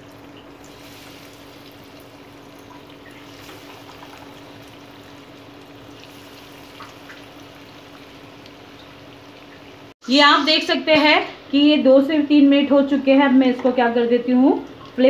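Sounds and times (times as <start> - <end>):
food sizzling in hot oil: 0.0 - 10.0.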